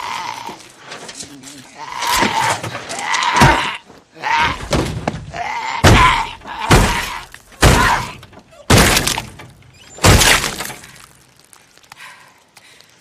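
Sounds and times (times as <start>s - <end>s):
glass breaking: 6.7s - 11.5s.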